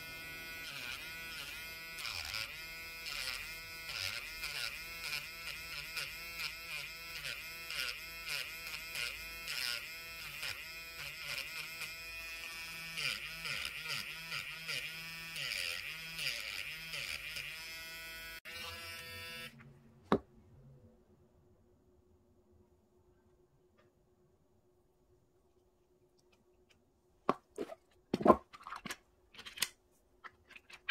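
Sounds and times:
electric nail drill buzzing: 0:00.0 - 0:19.6.

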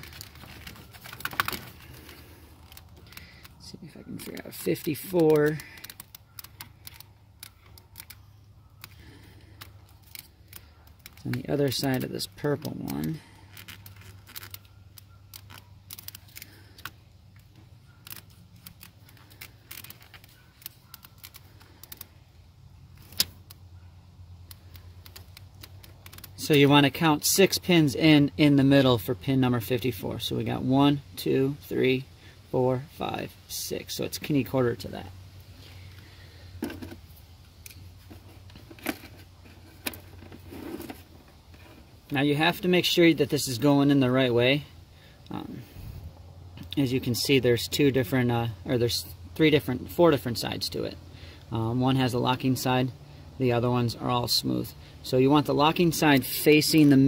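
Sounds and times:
connector clicks and wire rustles: 0:00.0 - 0:22.2, 0:22.9 - 0:23.6, 0:24.4 - 0:27.4.

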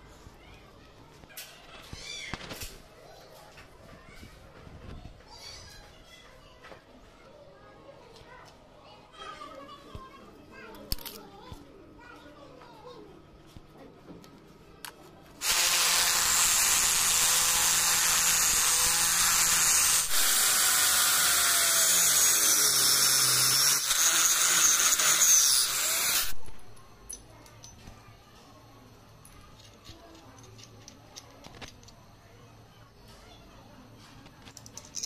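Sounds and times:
angle grinder cutting stone: 0:15.4 - 0:26.5.

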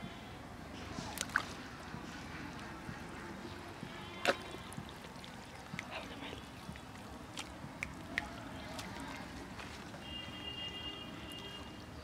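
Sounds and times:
hands squelching in wet mud: 0:00.8 - 0:10.3
wet sloshing: 0:00.8 - 0:10.5.

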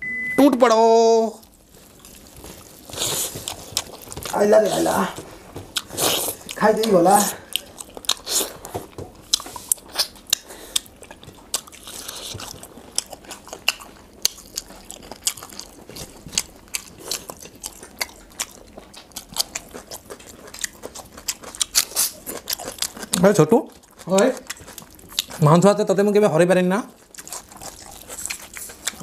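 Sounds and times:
lip smacks and chewing: 0:05.7 - 0:25.4, 0:27.0 - 0:29.0.

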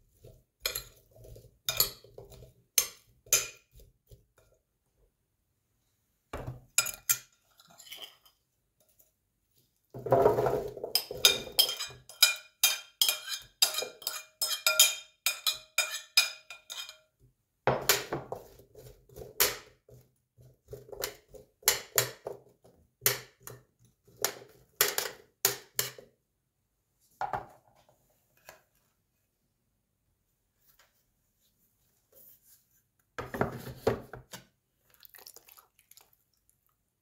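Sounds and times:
spoon clinking against a bowl: 0:01.7 - 0:02.2, 0:11.0 - 0:17.1.

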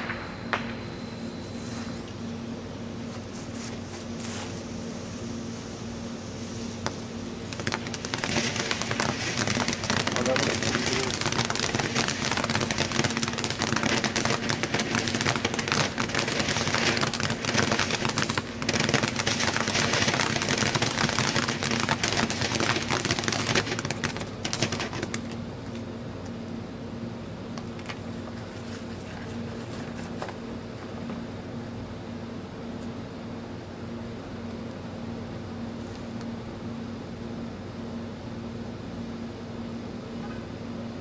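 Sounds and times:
firework fountain hissing and crackling: 0:00.0 - 0:02.1, 0:03.1 - 0:25.4.

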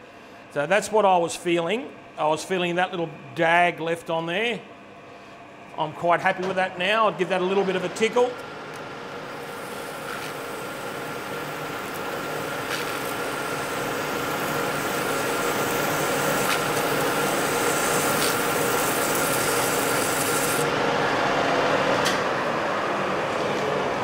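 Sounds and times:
lathe humming: 0:06.8 - 0:21.1.

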